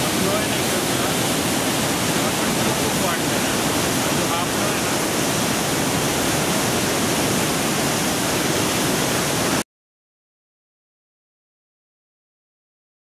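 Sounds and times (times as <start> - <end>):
waterfall rushing: 0.0 - 9.6.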